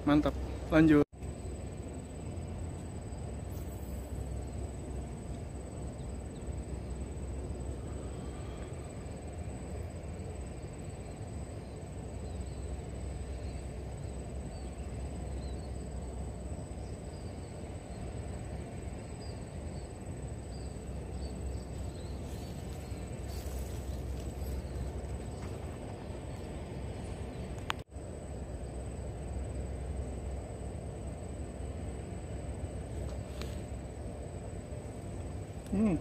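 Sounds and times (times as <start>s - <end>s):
faint high chirping calls: 19.0s - 25.6s.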